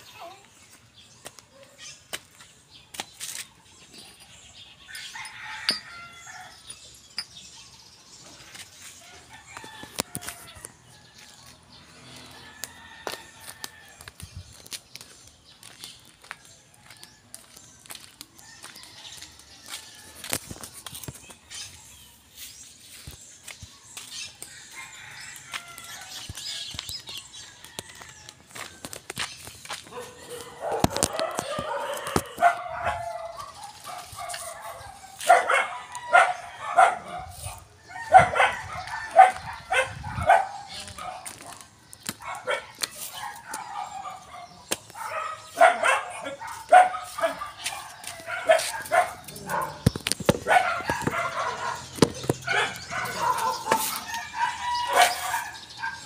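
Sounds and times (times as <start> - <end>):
footsteps: 9.6 - 35.4, 46.4 - 55.5.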